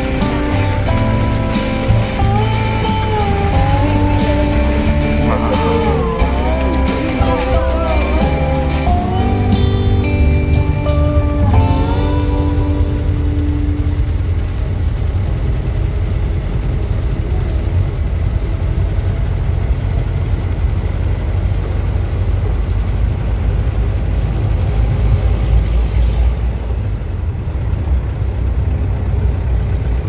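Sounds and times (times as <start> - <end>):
car engine and road rumble: 0.0 - 30.0.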